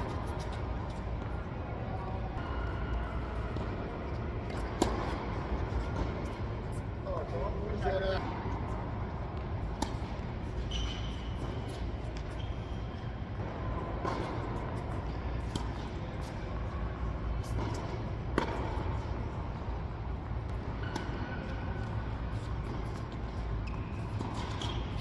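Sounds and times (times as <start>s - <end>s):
low hall hum: 0.0s - 25.0s
shoes squeaking on court: 0.0s - 25.0s
tennis ball struck by racquets: 3.4s - 6.4s, 9.4s - 10.8s, 17.4s - 19.2s.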